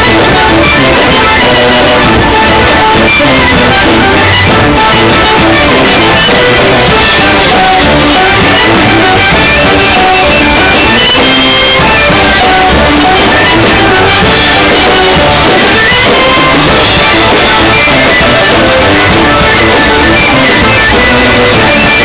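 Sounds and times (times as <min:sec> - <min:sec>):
alto saxophone: 0:00.0 - 0:22.0
clarinet: 0:00.0 - 0:22.0
drum: 0:00.0 - 0:22.0
tuba: 0:00.0 - 0:22.0.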